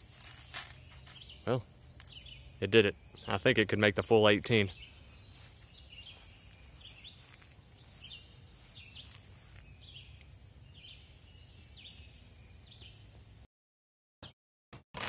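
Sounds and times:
bird chirping: 0.0s - 13.1s
faint high whine: 0.0s - 13.4s.

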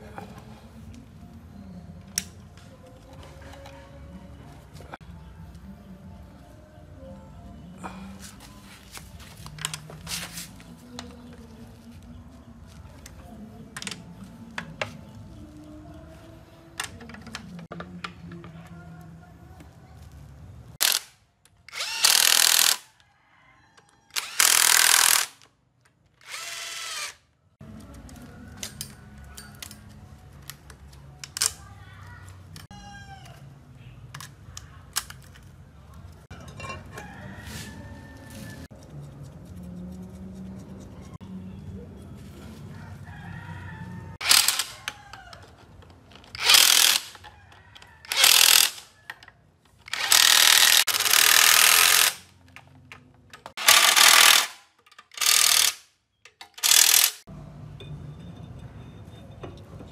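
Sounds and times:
impact wrench bursts: 20.8s - 21.1s, 21.7s - 22.9s, 24.1s - 25.4s, 26.2s - 27.2s, 44.2s - 44.8s, 46.3s - 47.2s, 48.1s - 48.9s, 49.9s - 52.3s, 53.6s - 55.8s, 56.6s - 57.2s.

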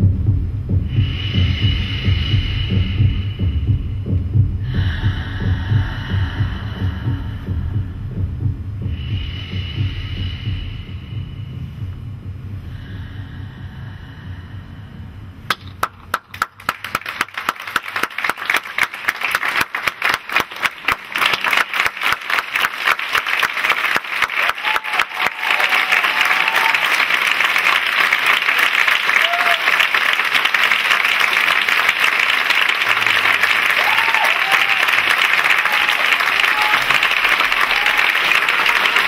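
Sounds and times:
audience applauding: 15.5s - 39.0s.

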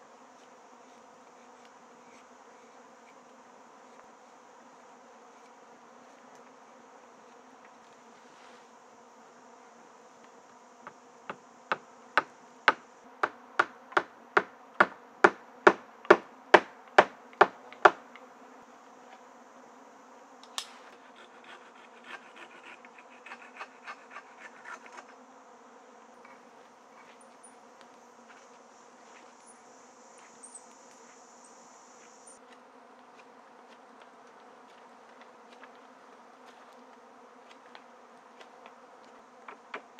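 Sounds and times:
insects buzzing and trilling: 0.0s - 39.9s
hammering on wood: 11.3s - 18.0s
sharp click: 20.4s - 20.8s.

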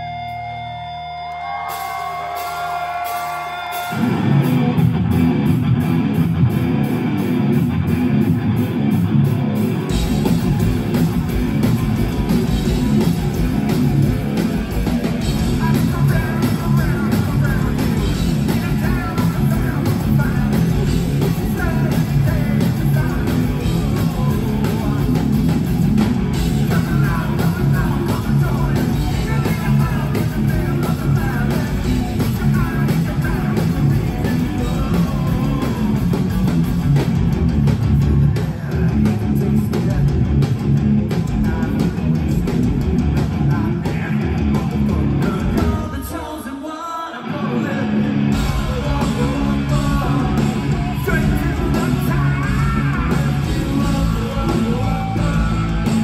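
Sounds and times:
bass guitar: 0.0s - 46.0s, 47.3s - 56.0s
drums: 0.0s - 56.0s
electric guitar: 0.0s - 56.0s
person singing: 15.2s - 25.4s, 26.4s - 36.4s, 43.5s - 56.0s.

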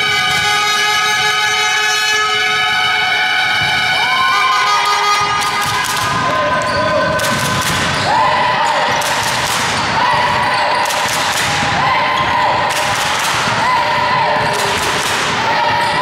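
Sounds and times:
basketball bouncing: 5.4s - 16.0s.

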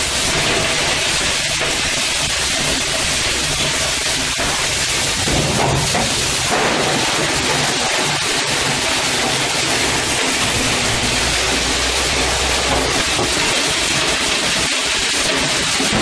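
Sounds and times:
industrial machine noise: 0.0s - 16.0s
low hum: 9.5s - 14.6s.

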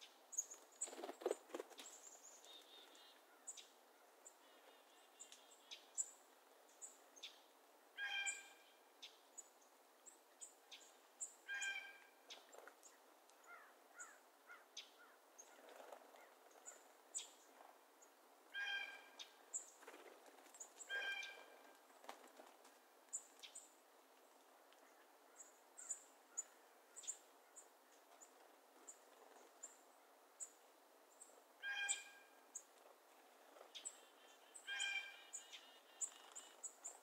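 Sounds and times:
harsh drawn-out bird calls: 8.0s - 8.8s, 11.5s - 12.2s, 13.4s - 16.9s, 18.5s - 19.4s, 20.8s - 21.6s, 31.6s - 32.6s, 33.6s - 37.0s.

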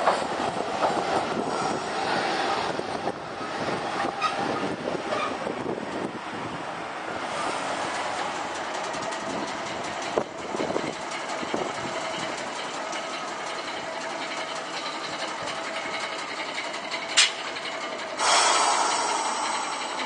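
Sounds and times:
streetcar rolling past: 0.0s - 20.0s
sudden loud rush of noise: 18.2s - 20.0s.

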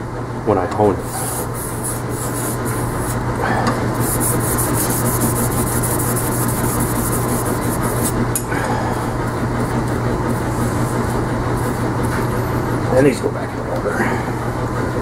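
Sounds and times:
blade scraping on whetstone: 1.1s - 3.2s, 4.0s - 8.2s.

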